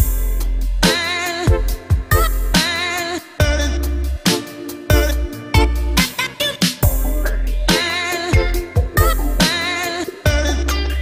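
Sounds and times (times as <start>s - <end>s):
drum hits: 0.0s - 2.8s, 6.6s - 9.7s
deep sustained bass: 3.4s - 4.2s, 4.9s - 6.0s, 8.4s - 9.4s
wavering melody line: 3.7s - 11.0s.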